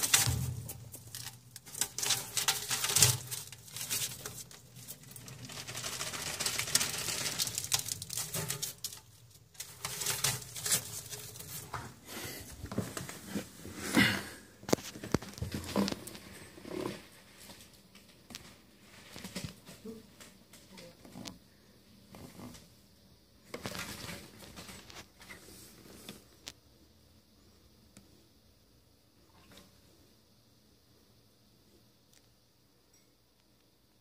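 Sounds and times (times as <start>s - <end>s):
rustling and pattering on newspaper: 0.0s - 13.6s.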